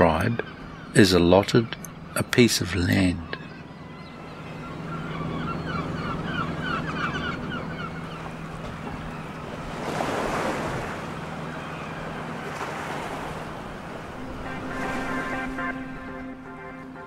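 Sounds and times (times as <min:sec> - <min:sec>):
birds calling: 0:00.0 - 0:17.0
steady low hum: 0:10.7 - 0:17.0
water washing against shore: 0:12.2 - 0:16.6.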